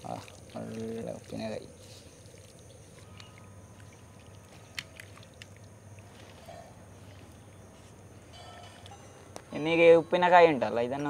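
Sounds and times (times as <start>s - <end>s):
wet paste squishing: 0.0s - 7.6s.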